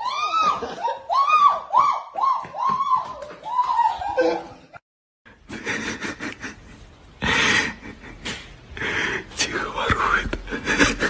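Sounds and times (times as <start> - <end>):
person shrieking high-pitched yelps: 0.0 - 4.6.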